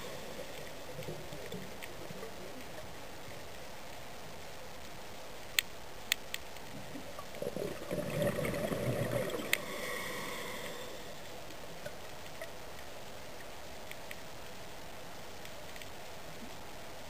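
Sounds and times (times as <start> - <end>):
sharp underwater clicks: 5.5 - 7.5, 8.2 - 9.7, 11.8 - 14.3
rushing gurgling water: 6.8 - 11.0
underwater hiss: 7.4 - 11.4.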